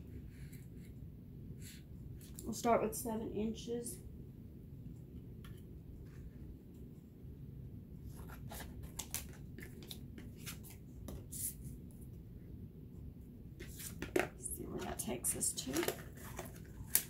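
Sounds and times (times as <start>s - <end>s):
cardboard scratching: 8.1s - 11.6s.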